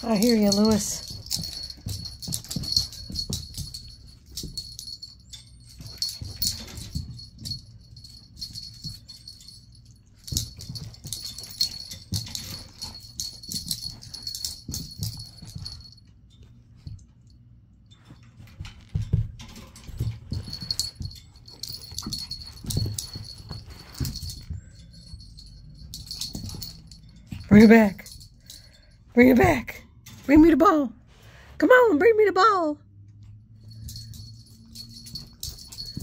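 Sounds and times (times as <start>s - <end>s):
metal harness tags jingling: 0.0s - 16.0s, 18.2s - 29.0s, 33.7s - 36.0s
soft thuds of paws and ball on carpet: 0.0s - 17.3s, 17.9s - 28.6s.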